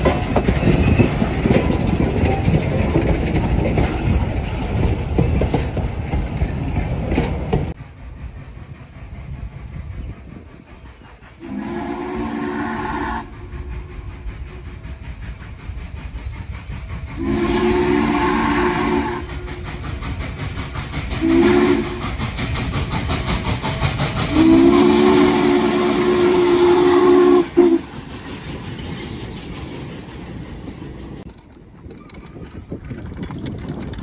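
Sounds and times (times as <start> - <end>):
steam locomotive exhaust chuffs: 0.0 - 31.8
steam hiss: 4.1 - 31.3
steam whistle blowing: 11.4 - 13.5, 17.2 - 19.6, 21.2 - 22.0, 24.3 - 27.9.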